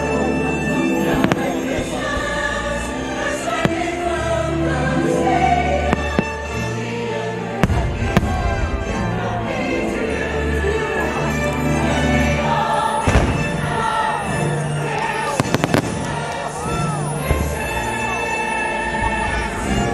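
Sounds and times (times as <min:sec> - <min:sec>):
choir singing: 0:00.0 - 0:19.9
firework bangs: 0:01.1 - 0:02.4, 0:03.4 - 0:04.3, 0:05.8 - 0:06.6, 0:07.6 - 0:09.0, 0:13.0 - 0:14.1, 0:15.0 - 0:17.6.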